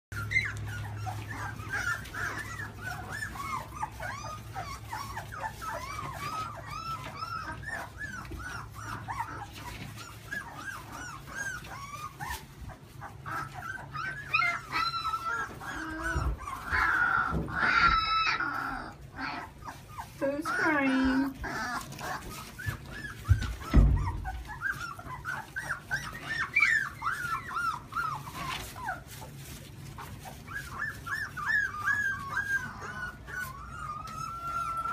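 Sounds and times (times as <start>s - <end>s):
puppies whimpering and squeaking: 0.1s - 34.9s.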